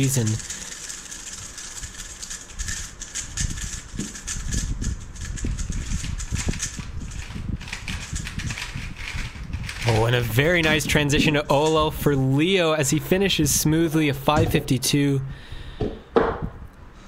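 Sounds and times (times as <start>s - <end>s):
puzzle cube plastic clicks: 5.3s - 9.9s.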